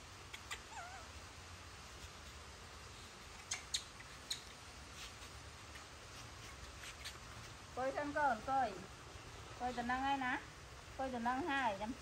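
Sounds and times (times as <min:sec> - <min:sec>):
baby monkey squeaking: 0:03.4 - 0:04.6.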